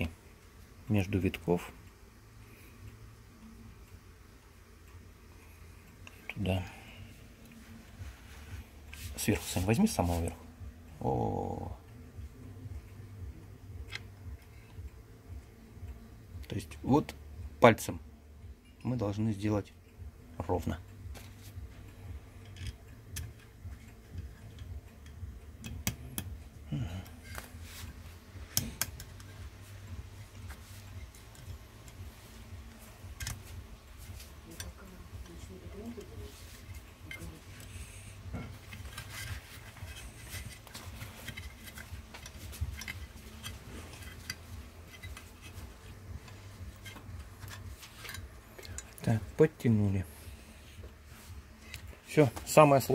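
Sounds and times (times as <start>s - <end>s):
steady low hum: 0.0s - 52.9s
metallic clicks and taps: 22.4s - 26.5s, 28.5s - 29.6s, 32.7s - 33.6s, 38.3s - 49.1s.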